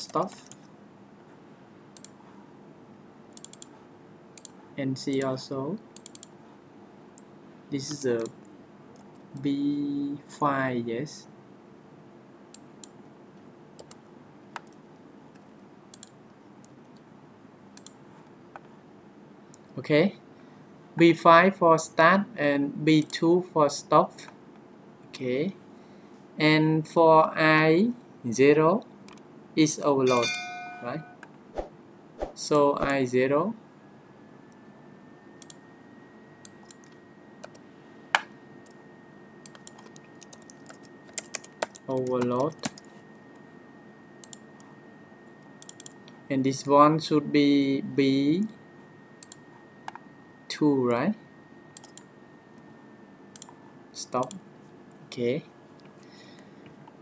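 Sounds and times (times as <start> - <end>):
faint hum: 0.0 - 57.0
keyboard and mouse clicks: 3.4 - 3.7, 6.0 - 6.3, 13.8 - 14.0, 15.9 - 16.2, 17.8 - 18.0, 39.4 - 42.9, 45.6 - 46.0, 49.2 - 50.0, 53.4 - 53.6
thin high tone: 30.0 - 31.2.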